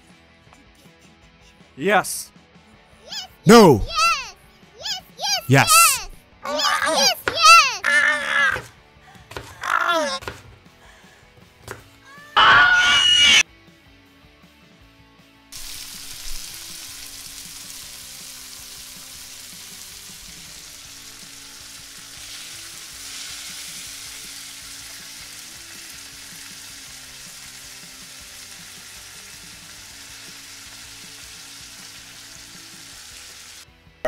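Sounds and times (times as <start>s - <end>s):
meat sizzling in hot oil: 15.5s - 33.6s.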